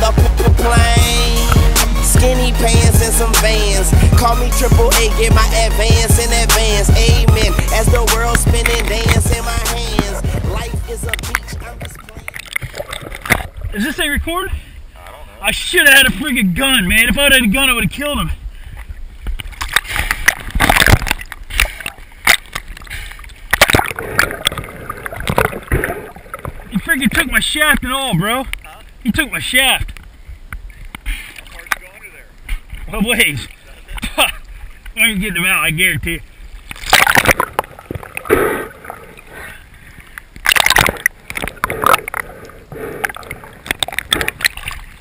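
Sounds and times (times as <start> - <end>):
sea water sloshing and splashing: 11.1 - 13.9, 18.6 - 26.9, 36.3 - 45.0
splashing at water surface: 36.7 - 39.1.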